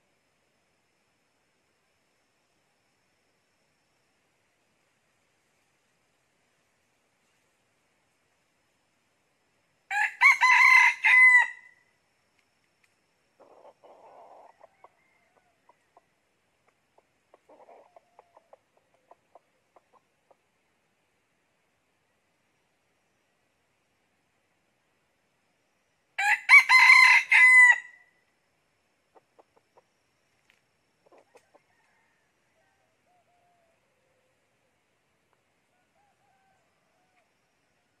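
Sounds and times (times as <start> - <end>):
rooster crowing: 9.9 - 11.8, 13.4 - 15.8, 26.2 - 28.1, 31.4 - 33.8, 35.7 - 37.4
faint clicks: 12.3 - 13.0.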